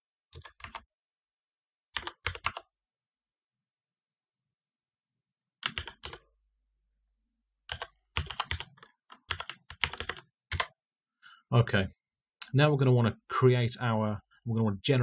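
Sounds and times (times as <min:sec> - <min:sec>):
keyboard typing: 0:00.3 - 0:00.9, 0:02.0 - 0:02.7, 0:05.6 - 0:06.2, 0:07.7 - 0:10.8.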